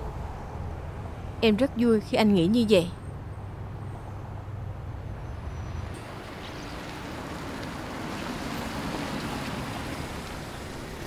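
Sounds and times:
road noise hiss: 0:00.0 - 0:11.0.

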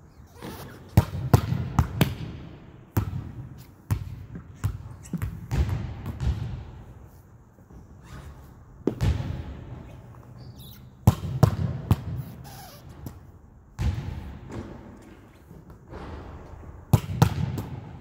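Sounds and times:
volleyball hits: 0:08.8 - 0:09.6, 0:16.9 - 0:17.9.

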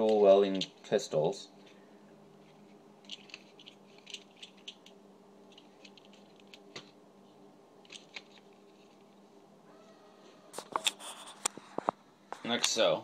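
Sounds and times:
faint steady hum: 0:00.0 - 0:13.0
plastic toy parts clicking: 0:03.0 - 0:06.8.

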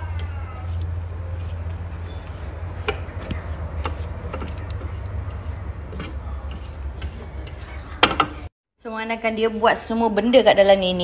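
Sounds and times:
spatula scraping a steel bowl: 0:01.0 - 0:08.0.

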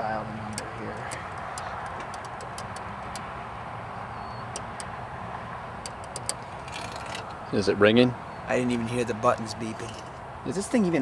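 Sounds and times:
telephone keypad buttons clicking: 0:00.5 - 0:03.3.

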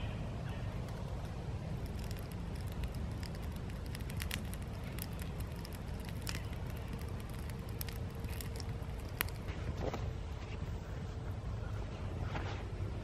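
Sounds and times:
wood fire crackling: 0:00.5 - 0:09.9
sharp pops: 0:00.8 - 0:09.5.

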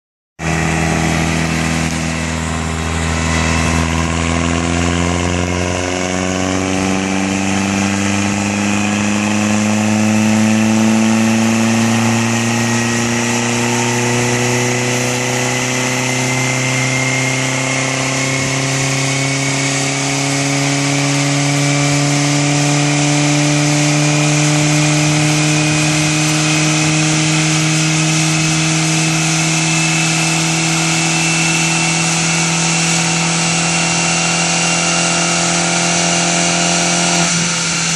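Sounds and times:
low hum: 0:00.4 - 0:13.2
car engine under load: 0:00.4 - 0:37.9.

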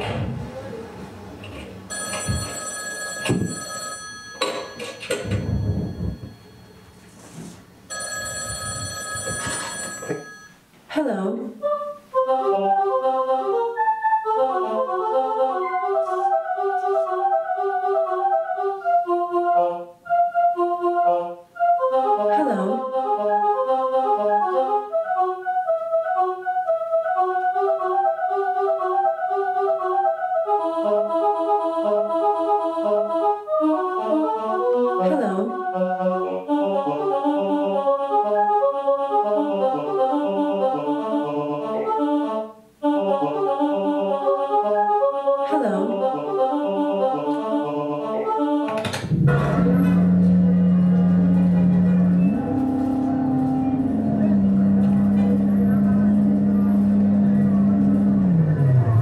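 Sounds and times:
fast synthesizer notes: 0:49.0 - 0:59.0
sweeping pitch glide: 0:49.0 - 0:59.0.

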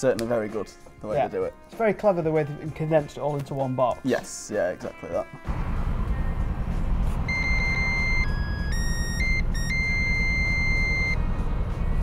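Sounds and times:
steady low rumble: 0:05.5 - 0:12.0
electronic charger beeps: 0:07.3 - 0:11.2.

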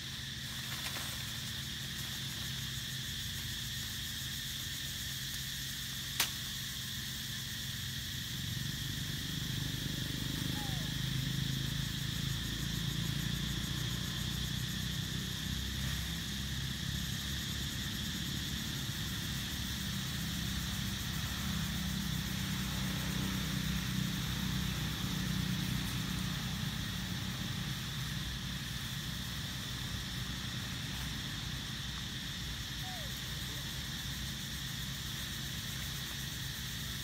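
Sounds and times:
constant high hiss: 0:00.0 - 0:37.0
engine running low hum: 0:07.8 - 0:37.0.

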